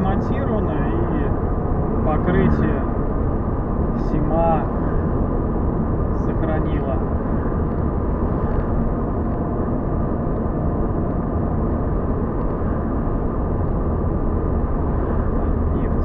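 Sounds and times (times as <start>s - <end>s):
car road noise drone: 0.0s - 16.0s.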